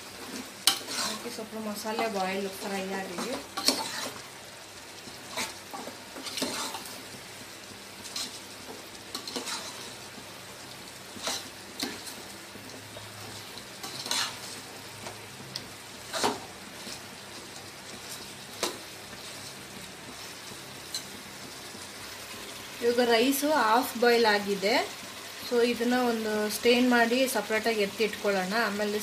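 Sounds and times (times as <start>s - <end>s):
food sizzling in a metal pot: 0.0s - 29.0s
metal spoon scraping a pot: 0.7s - 1.3s, 3.1s - 4.2s, 5.3s - 6.9s, 9.1s - 9.9s, 13.8s - 14.5s.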